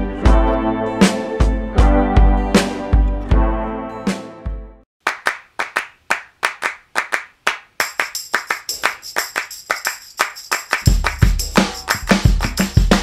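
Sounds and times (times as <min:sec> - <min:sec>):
handclaps: 0:05.0 - 0:13.0
high percussion: 0:07.8 - 0:13.0
bass beat: 0:10.8 - 0:13.0.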